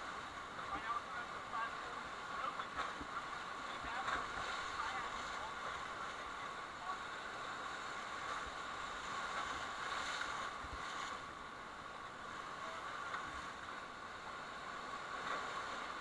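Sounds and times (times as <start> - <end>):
whitewater rushing: 0.0 - 16.0.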